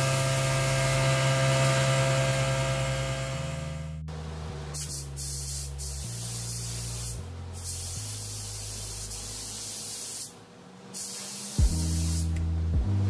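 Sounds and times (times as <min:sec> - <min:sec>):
paint spray gun hissing: 0:00.0 - 0:01.6, 0:04.7 - 0:12.4.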